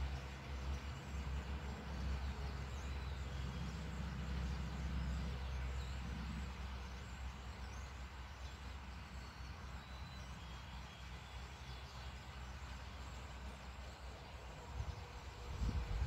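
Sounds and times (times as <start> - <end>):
steady low rumble: 14.6 - 16.0.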